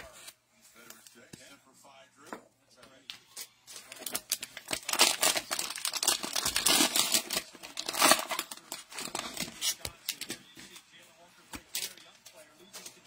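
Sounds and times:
plastic wrapper tearing and crinkling: 3.8s - 10.4s.

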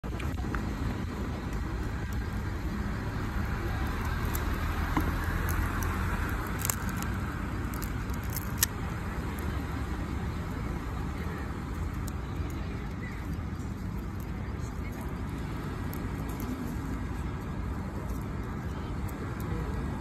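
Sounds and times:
low outdoor rumble: 0.0s - 20.0s
plastic label peeling crinkles: 3.8s - 9.6s.

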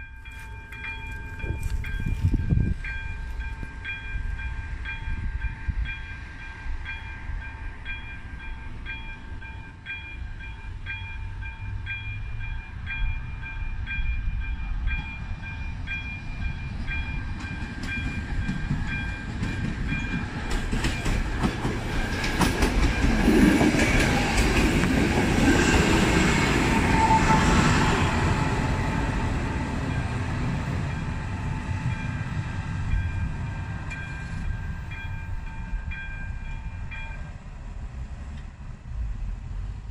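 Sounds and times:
railway crossing bell ringing: 0.0s - 37.6s
diesel railcar engine rumble: 0.0s - 39.9s
rail clatter: 15.9s - 37.3s.

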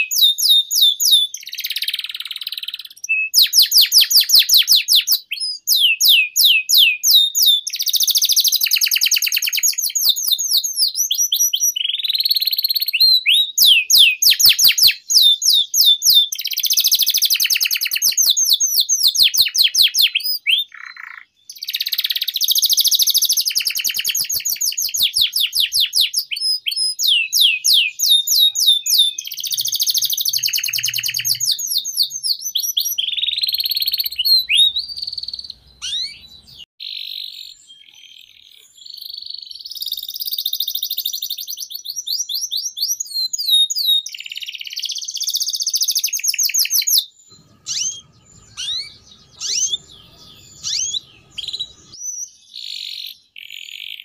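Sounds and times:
canary singing trills: 0.0s - 54.0s
buzzy bird notes: 47.3s - 52.0s.

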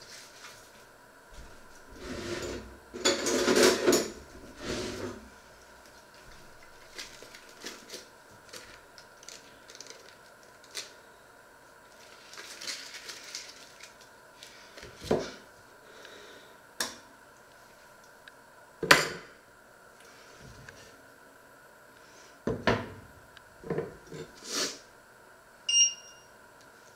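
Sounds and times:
foil wrapper crinkling: 5.8s - 11.0s, 11.8s - 14.8s.

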